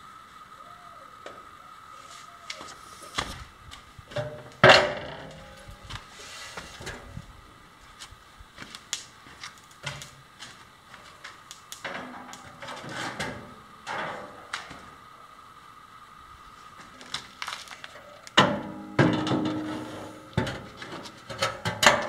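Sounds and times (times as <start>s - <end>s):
metal knocks and clatter: 18.4s - 22.0s
metal scraping: 18.6s - 21.7s.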